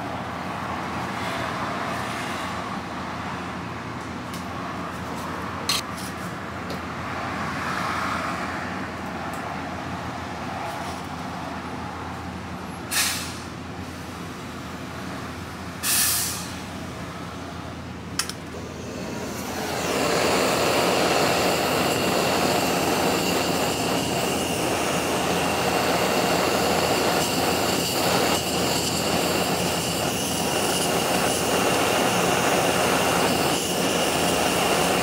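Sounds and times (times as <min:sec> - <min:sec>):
short sharp hisses: 0:12.9 - 0:13.5, 0:15.8 - 0:16.7
kitchen room noise: 0:18.2 - 0:35.0
machine hum: 0:18.5 - 0:35.0.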